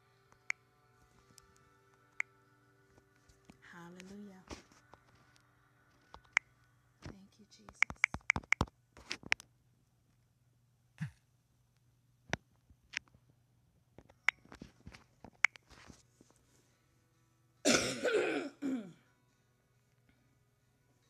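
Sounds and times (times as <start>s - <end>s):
faint clicks and taps: 3.3s - 9.5s
woman coughing: 17.7s - 19.0s.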